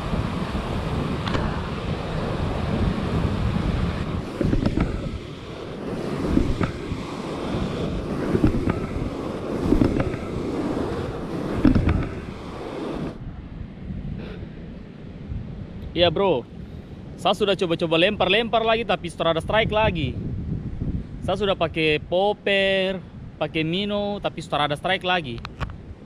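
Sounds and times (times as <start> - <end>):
surf breaking over reef: 0.0 - 15.4
wind rumbling on microphone: 0.0 - 26.0.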